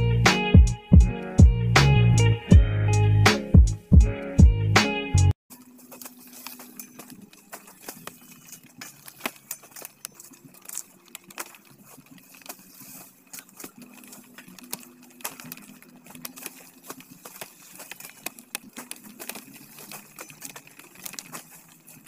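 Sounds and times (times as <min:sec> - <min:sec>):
machete cutting cane stalks: 0:05.8 - 0:22.0.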